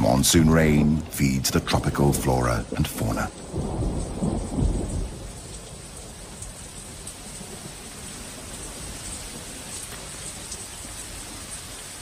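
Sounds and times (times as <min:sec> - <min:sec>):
heavy rain hiss: 0:00.0 - 0:12.0.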